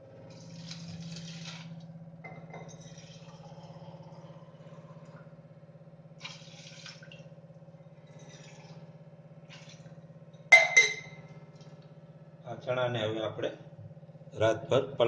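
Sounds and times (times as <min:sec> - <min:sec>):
low steady hum: 0:00.0 - 0:15.0
water pouring and splashing: 0:00.2 - 0:01.9, 0:06.2 - 0:07.4, 0:08.1 - 0:10.0
water trickling: 0:00.3 - 0:01.9, 0:06.2 - 0:11.8.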